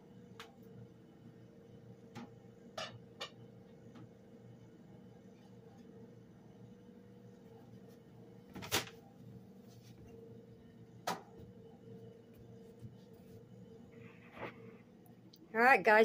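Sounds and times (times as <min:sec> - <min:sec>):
faint room hum: 0:00.0 - 0:16.0.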